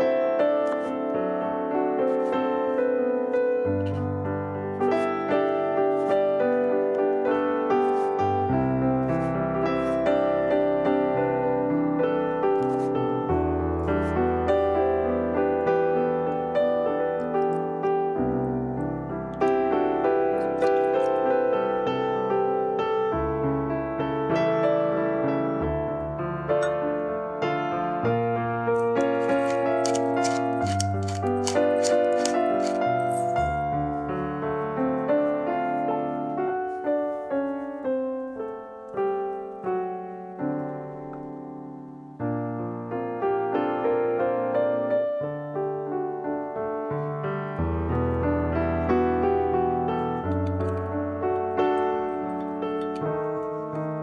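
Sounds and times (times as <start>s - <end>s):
gentle piano music: 0.0s - 54.0s.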